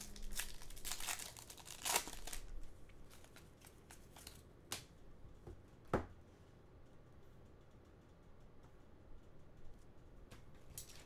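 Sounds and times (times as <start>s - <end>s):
card pack wrapper tearing: 0.0s - 4.4s
cards being handled: 0.0s - 4.9s.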